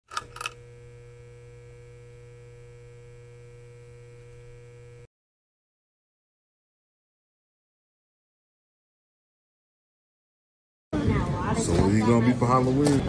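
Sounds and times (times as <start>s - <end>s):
neon sign electrical hum: 0.1s - 5.1s.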